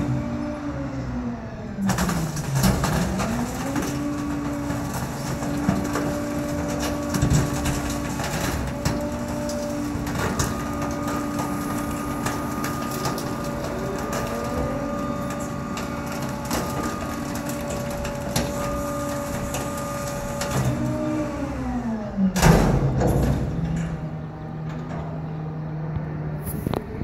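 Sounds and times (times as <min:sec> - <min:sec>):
hydraulic whine: 0:00.0 - 0:25.2
truck engine running: 0:00.0 - 0:27.0
wood frame cracking: 0:01.8 - 0:21.0
loud metal clank: 0:22.4 - 0:25.2.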